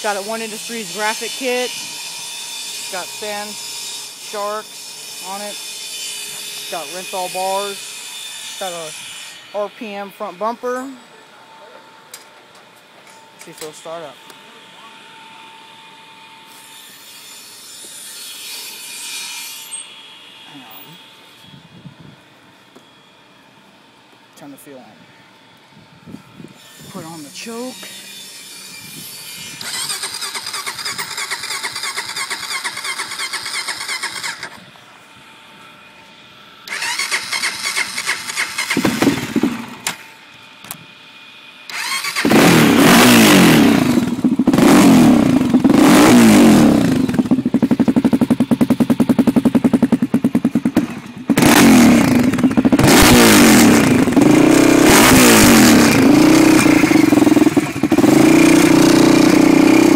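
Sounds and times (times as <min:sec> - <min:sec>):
engine cranking: 0:29.6 - 0:34.6, 0:36.7 - 0:40.0, 0:41.7 - 0:59.9
engine revving: 0:29.6 - 0:34.6, 0:36.7 - 0:39.9, 0:41.7 - 0:59.9.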